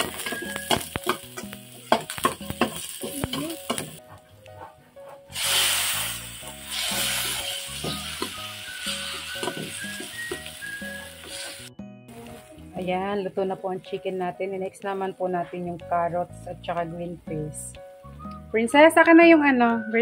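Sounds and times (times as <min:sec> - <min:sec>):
chicken sizzling in pan: 0:00.0 - 0:04.0, 0:05.3 - 0:11.7
onion and garlic frying: 0:00.0 - 0:04.0, 0:05.3 - 0:13.5.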